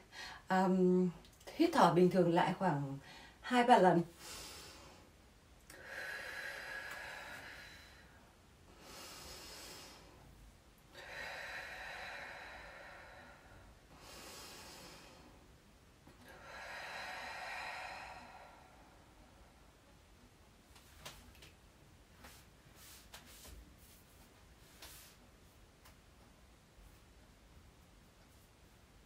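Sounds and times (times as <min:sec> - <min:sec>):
woman breathing deeply: 0:00.0 - 0:00.5, 0:03.0 - 0:03.4, 0:04.1 - 0:20.0.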